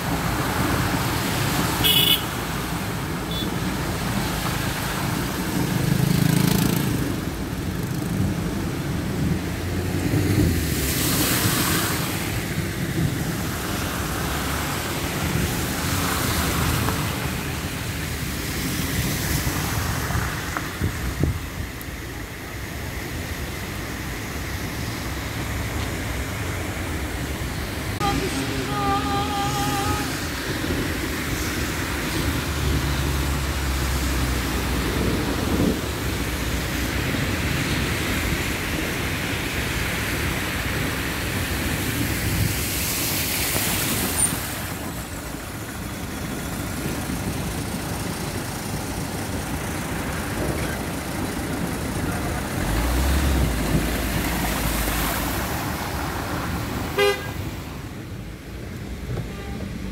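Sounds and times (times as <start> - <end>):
rain: 0.0 - 59.9
road traffic: 0.0 - 59.9
car horn toot: 1.8 - 2.3, 3.3 - 3.5, 57.0 - 57.4.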